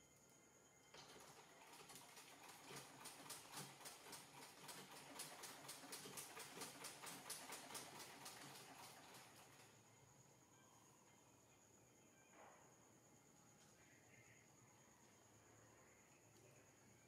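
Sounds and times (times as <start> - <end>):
sewing machine clicking: 0.9 - 9.7.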